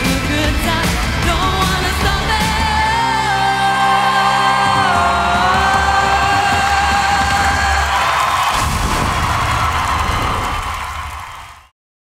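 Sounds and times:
woman singing pop song: 0.0s - 8.0s
backing track: 0.0s - 11.2s.

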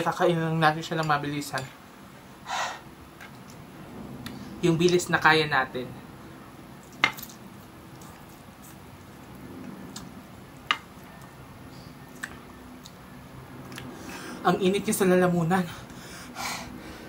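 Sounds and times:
sharp wet smacks: 12.1s - 13.0s.

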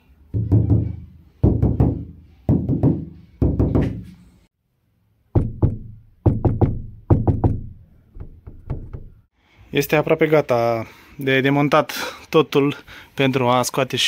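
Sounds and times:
fingers knocking on car roof: 0.4s - 4.0s, 5.4s - 9.2s.

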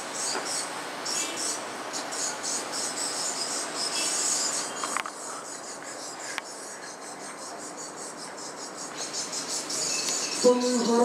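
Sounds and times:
steady hiss: 0.0s - 11.0s
high pulsing chirr: 8.5s - 11.0s.

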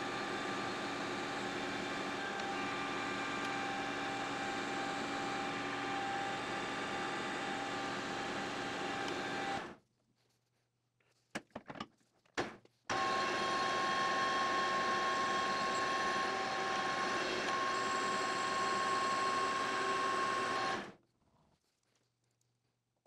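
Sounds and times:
metal lathe running: 0.0s - 9.6s, 12.9s - 20.9s.

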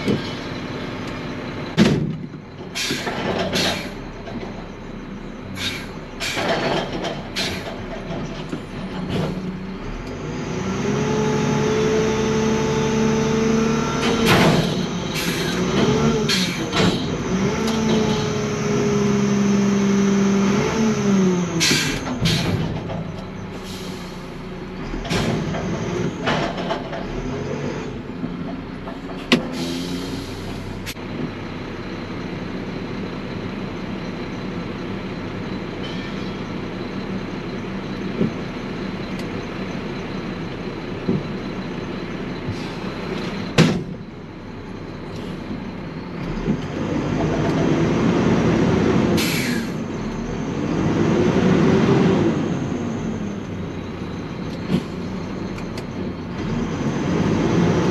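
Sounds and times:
diesel engine running: 0.0s - 57.9s
short air hisses: 5.6s - 6.4s, 29.5s - 30.7s, 49.2s - 49.8s
engine revving: 8.9s - 22.8s, 46.2s - 57.9s.

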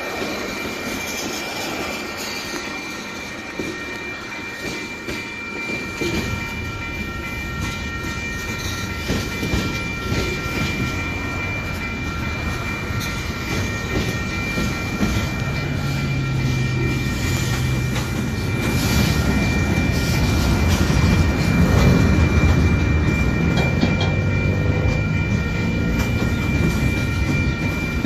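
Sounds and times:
train rumble: 0.0s - 28.0s
train wheels clacking over rail joints: 7.6s - 28.0s.

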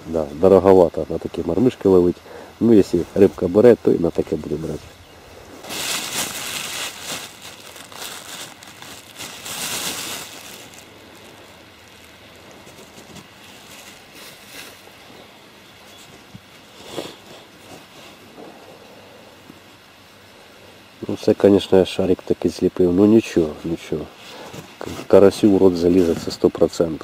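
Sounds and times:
plastic bag crinkling: 5.6s - 14.9s
small rustles and clicks: 5.7s - 14.9s.

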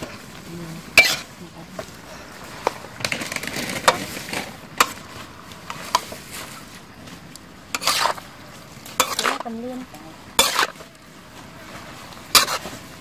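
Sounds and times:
frying hiss: 0.0s - 13.0s
metal spatula scraping a wok: 0.8s - 1.9s, 7.7s - 9.6s, 10.2s - 10.9s, 11.8s - 13.0s.

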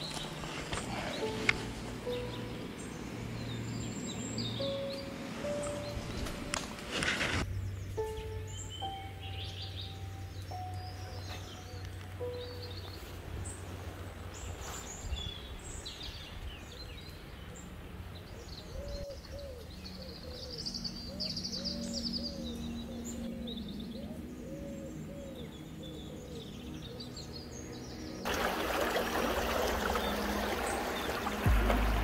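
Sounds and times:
low cooing calls: 0.0s - 3.0s, 17.4s - 27.4s
small birds chirping: 0.0s - 32.0s
low outdoor rumble: 28.2s - 32.0s
loud rush of noise: 28.3s - 32.0s.

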